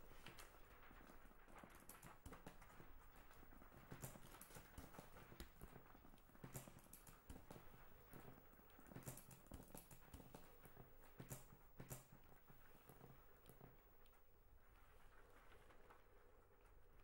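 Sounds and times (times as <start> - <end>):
faint irregular clicks and knocks: 0.0 - 17.0.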